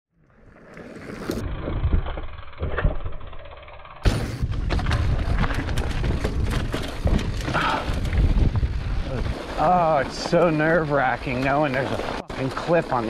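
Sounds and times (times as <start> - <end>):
bike rattling and knocking: 1.1 - 13.0
wind rumble on microphone: 4.4 - 9.6
tyres crunching over stones: 4.4 - 13.0.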